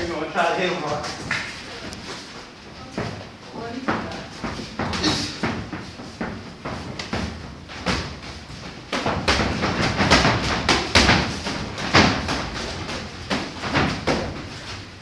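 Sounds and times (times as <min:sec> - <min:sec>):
boxing gloves thudding and slapping: 0:03.9 - 0:15.0.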